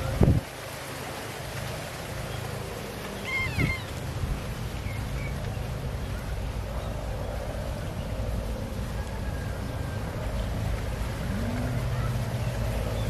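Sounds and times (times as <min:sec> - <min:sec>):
steady low rumble: 0:04.0 - 0:13.0.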